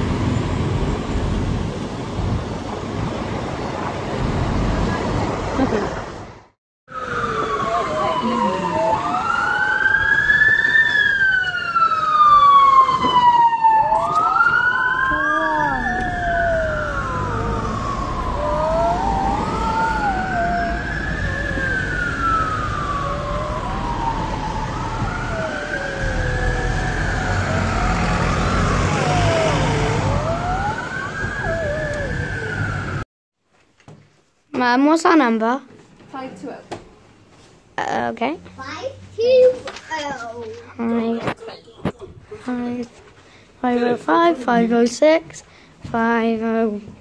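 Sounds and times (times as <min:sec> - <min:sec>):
road traffic rumble: 0:00.0 - 0:33.0, 0:36.2 - 0:47.0
second siren wavering: 0:06.9 - 0:33.0
emergency siren wailing: 0:06.9 - 0:33.1.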